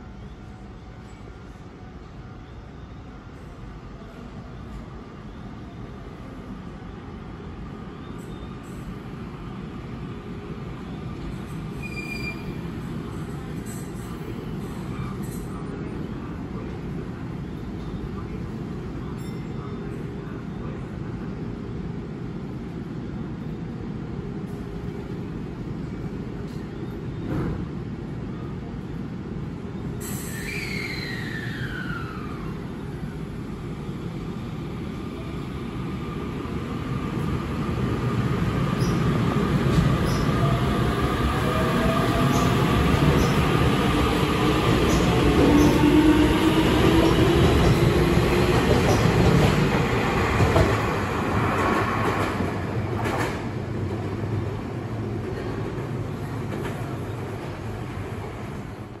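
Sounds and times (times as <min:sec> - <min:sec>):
train wheels rumbling on rail: 0:24.0 - 0:59.0.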